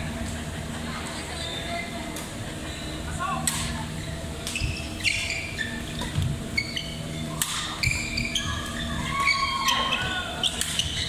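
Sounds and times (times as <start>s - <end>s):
shoes squeaking on court floor: 3.9s - 11.0s.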